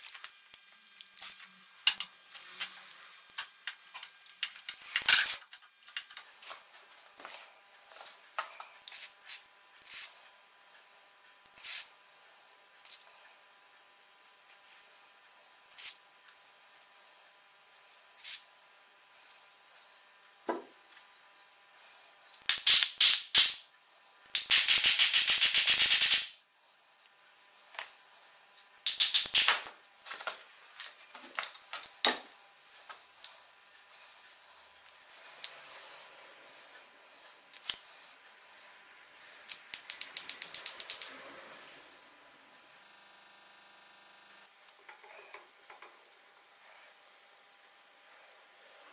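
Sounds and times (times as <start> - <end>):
metal parts clicking and knocking: 1.0 - 6.3, 22.5 - 23.6, 24.4 - 26.3, 28.9 - 29.8, 39.5 - 41.1
spray lubricant hiss: 8.9 - 10.2, 11.6 - 11.9, 24.4 - 26.4.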